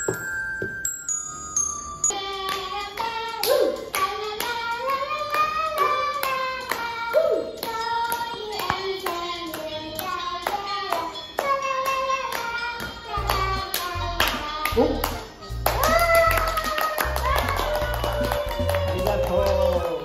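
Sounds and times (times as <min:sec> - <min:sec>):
girl singing: 0:02.1 - 0:14.8, 0:15.8 - 0:18.6
person clapping along: 0:07.6 - 0:20.0.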